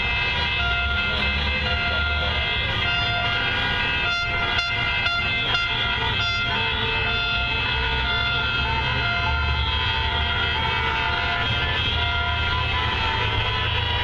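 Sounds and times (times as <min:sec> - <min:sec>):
car horns honking: 0:00.0 - 0:14.0
low rumble of traffic: 0:00.0 - 0:14.0.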